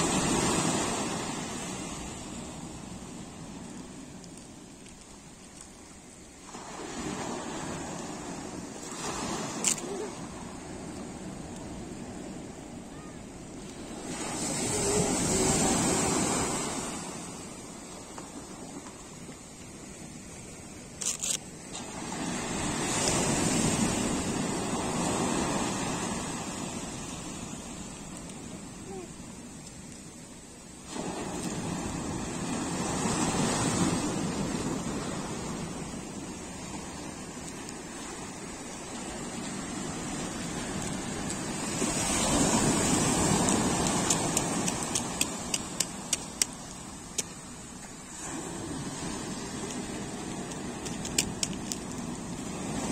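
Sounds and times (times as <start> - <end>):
ocean wave breaking on beach: 0.0 - 4.0, 6.4 - 18.7, 21.7 - 29.1, 30.8 - 52.9
sharp clicks: 43.4 - 47.4, 50.5 - 52.0.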